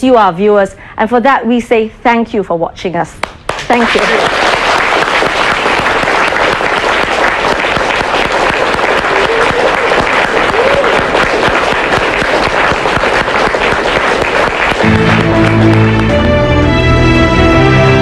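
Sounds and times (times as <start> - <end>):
crowd applauding: 3.4 - 17.8.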